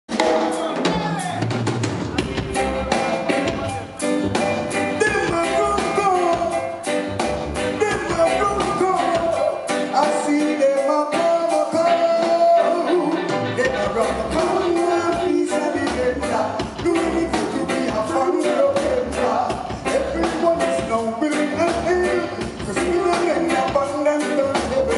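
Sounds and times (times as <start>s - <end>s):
drum kit beat: 0.1s - 24.9s
live reggae band: 0.1s - 24.9s
person singing: 4.7s - 6.8s, 7.7s - 24.9s.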